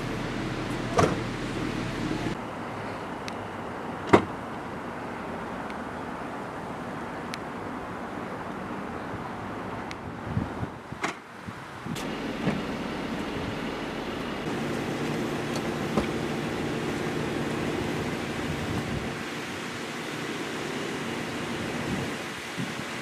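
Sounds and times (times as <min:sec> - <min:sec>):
car running noise: 0:00.0 - 0:02.4, 0:11.9 - 0:23.0.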